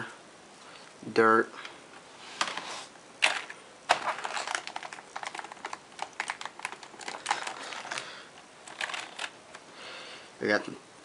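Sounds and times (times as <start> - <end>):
keyboard keys clacking: 3.2 - 8.0.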